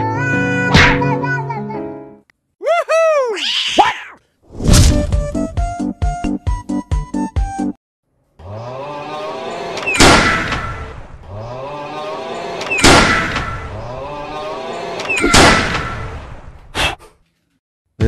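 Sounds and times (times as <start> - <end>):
blaster shots: 9.9 - 11.1, 12.7 - 13.8, 15.1 - 16.5.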